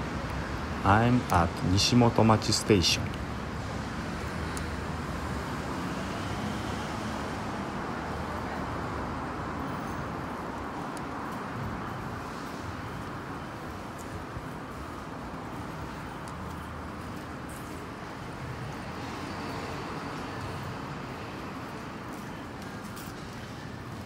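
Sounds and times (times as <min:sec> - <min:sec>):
urban background hum: 0:00.0 - 0:24.0.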